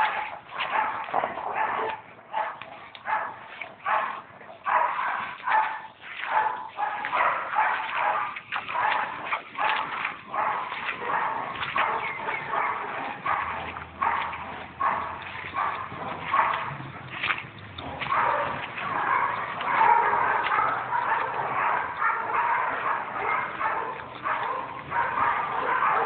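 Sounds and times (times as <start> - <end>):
dogs barking: 0.0 - 26.0.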